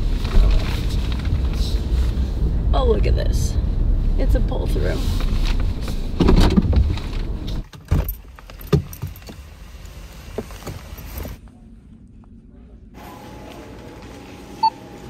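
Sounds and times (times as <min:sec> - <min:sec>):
car rumbling while parking: 0:00.0 - 0:15.0
clicks and knocks inside car: 0:05.2 - 0:11.4.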